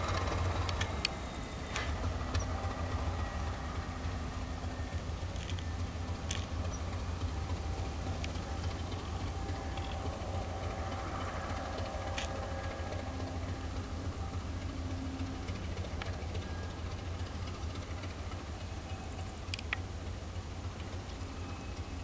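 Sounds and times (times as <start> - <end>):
diesel locomotive engine rumbling: 0.0 - 22.0
faint clicks: 11.4 - 12.7, 19.4 - 19.9.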